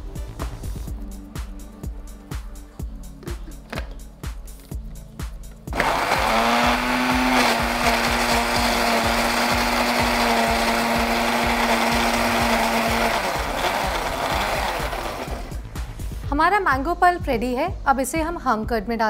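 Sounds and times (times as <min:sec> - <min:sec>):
background music with regular beat: 0:00.0 - 0:19.0
electric blender whining: 0:05.7 - 0:15.6.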